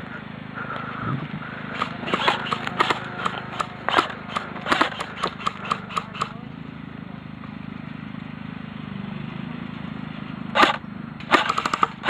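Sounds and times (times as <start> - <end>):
airsoft rifle shots clicking: 1.8 - 6.4, 10.6 - 12.0.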